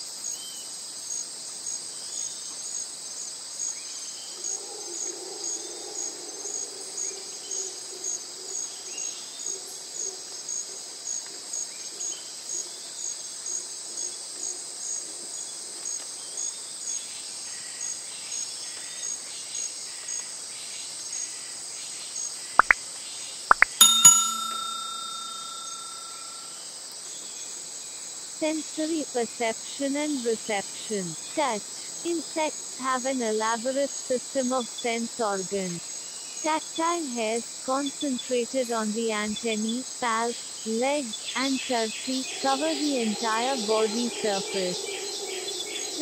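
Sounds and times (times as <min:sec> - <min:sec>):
insects chirping: 0:23.5 - 0:46.0.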